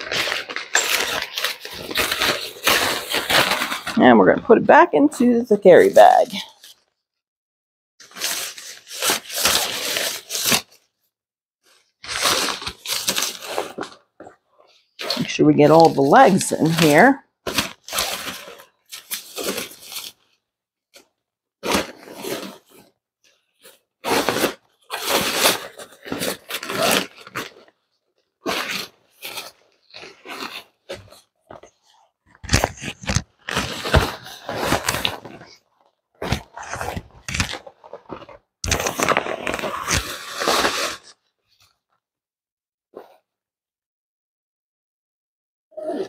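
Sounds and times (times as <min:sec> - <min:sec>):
fabric bag rustling and scraping: 0:00.0 - 0:04.2, 0:11.6 - 0:20.2, 0:21.6 - 0:27.7, 0:28.4 - 0:41.1.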